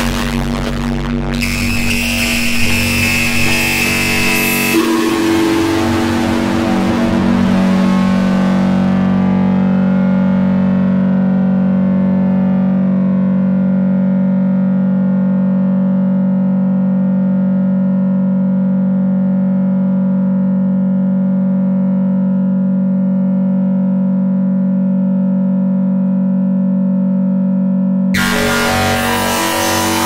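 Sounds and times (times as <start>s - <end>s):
harsh distorted noise burst: 0.0s - 9.8s, 28.2s - 30.0s
low synthesizer drone: 0.0s - 23.4s, 28.1s - 30.0s.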